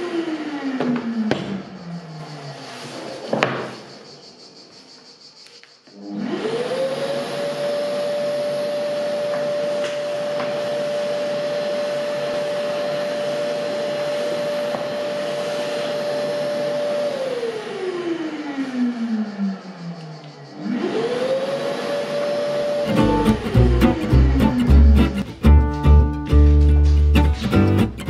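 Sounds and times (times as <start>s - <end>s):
motor winding down: 0.0s - 2.0s, 6.0s - 25.2s
dust extractor whining: 0.0s - 3.3s, 6.0s - 20.0s, 20.6s - 25.7s.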